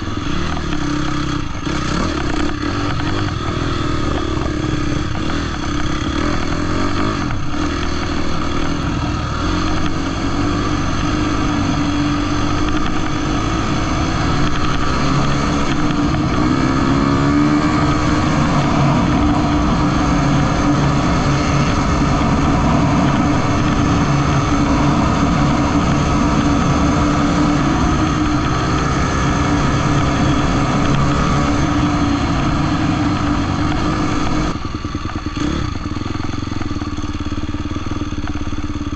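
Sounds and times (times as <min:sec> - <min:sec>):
dirt bike engine running: 0:00.0 - 0:38.9.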